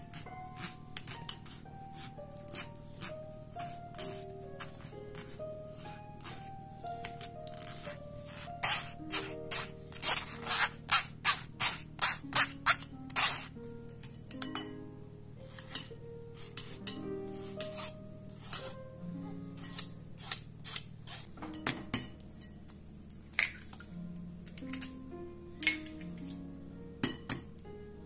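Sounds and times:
soft background music: 0.0s - 28.0s
spoon scraping through wire strainer: 7.1s - 13.5s, 15.5s - 18.8s.

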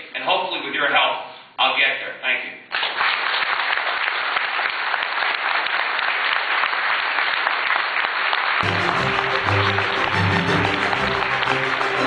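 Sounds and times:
audience applauding: 2.7s - 12.0s
background music with low notes: 8.6s - 12.0s.

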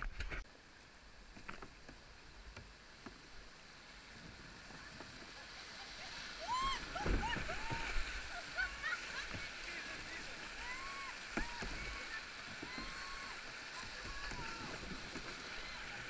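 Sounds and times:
rushing river water: 0.0s - 16.0s.

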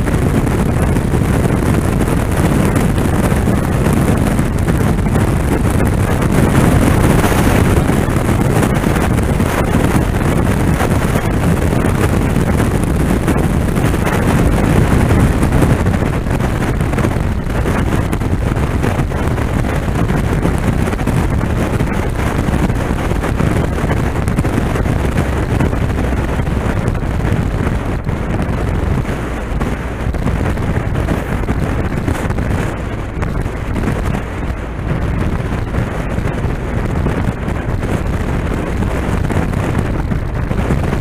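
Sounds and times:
motorcycle engine and tyres droning: 0.0s - 41.0s
wind rushing over microphone: 0.0s - 41.0s.

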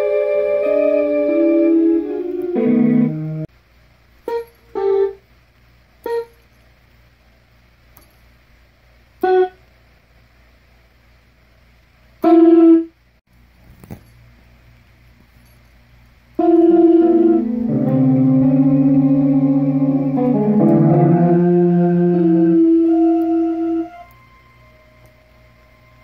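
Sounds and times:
electronic keyboard notes: 0.0s - 3.5s, 4.3s - 5.2s, 6.0s - 6.4s, 9.2s - 9.6s, 16.4s - 26.0s.

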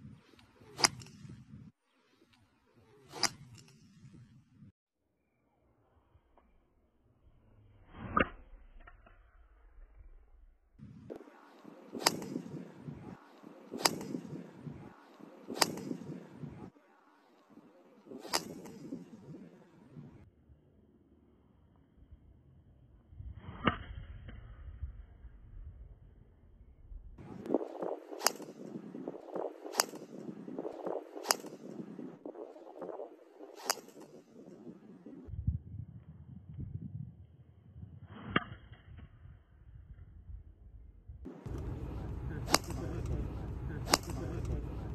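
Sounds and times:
background noise: 0.0s - 44.9s
outdoor background noise: 0.0s - 44.9s
golf club striking ball: 12.0s - 12.5s, 13.8s - 14.3s, 15.5s - 16.1s, 18.2s - 19.0s, 28.2s - 28.6s, 29.7s - 30.1s, 31.2s - 31.7s, 41.4s - 44.7s.

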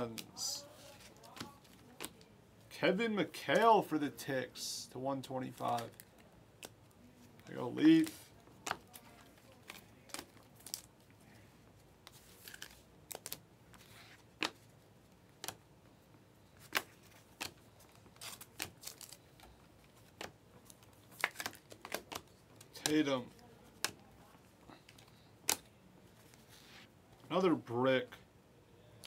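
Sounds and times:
trading cards clicking and snapping: 15.4s - 15.6s, 16.6s - 23.0s, 24.8s - 25.7s.

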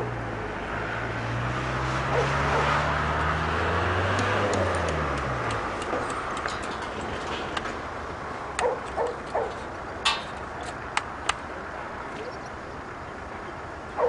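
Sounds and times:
dog barking: 2.1s - 2.8s, 8.6s - 9.6s.

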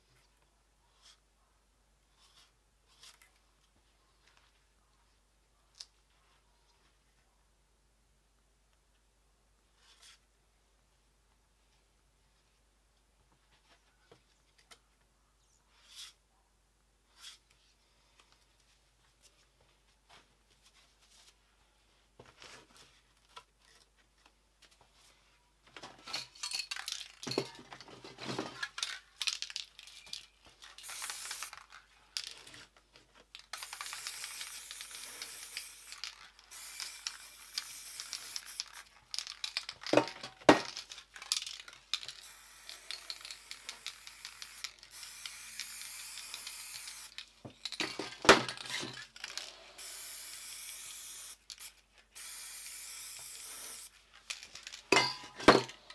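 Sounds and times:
spray cans clinking and rattling: 25.8s - 32.7s, 33.3s - 55.9s
metallic clicks of cans: 26.1s - 27.6s
aerosol spraying hiss: 30.8s - 31.5s, 33.6s - 38.9s, 42.2s - 47.2s, 49.8s - 53.9s.

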